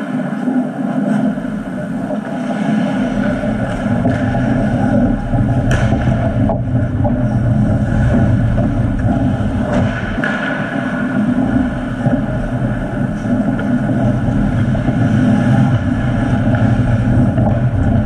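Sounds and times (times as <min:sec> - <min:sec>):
ice rink ambience rumble: 0:00.0 - 0:18.0.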